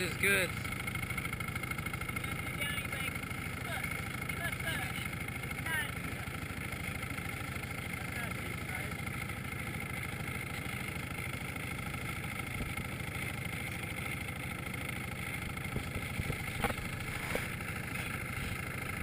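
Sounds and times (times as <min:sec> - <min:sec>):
motorboat engine running: 0:00.0 - 0:19.0.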